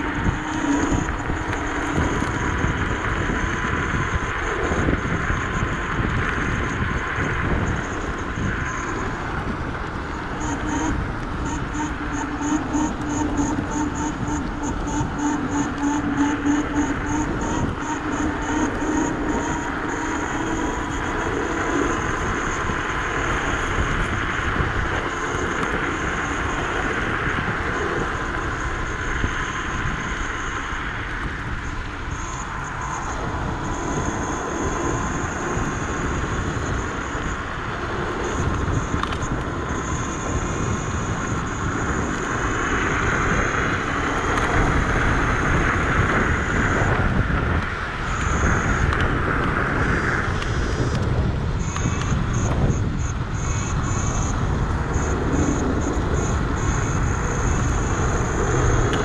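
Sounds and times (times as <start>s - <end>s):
electric motor whine: 0.0s - 59.0s
faint high whine: 0.0s - 59.0s
wind buffeting microphone: 0.0s - 59.0s.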